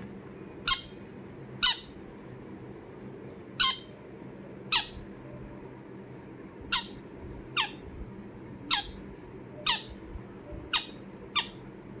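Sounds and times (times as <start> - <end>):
parrot squawking: 0.6 - 1.0, 1.6 - 2.0, 3.6 - 4.0, 4.7 - 5.0, 6.7 - 7.9, 8.6 - 10.0, 10.6 - 11.7.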